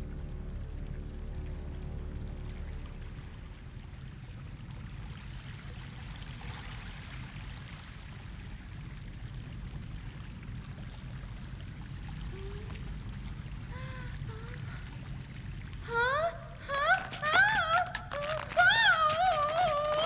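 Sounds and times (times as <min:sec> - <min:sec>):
low rumble: 0:00.0 - 0:05.8.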